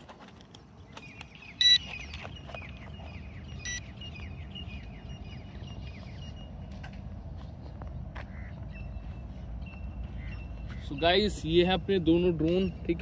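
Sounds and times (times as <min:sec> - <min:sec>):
birds chirping: 0:00.0 - 0:13.0
high electronic beeps: 0:01.6 - 0:01.9, 0:03.6 - 0:03.9.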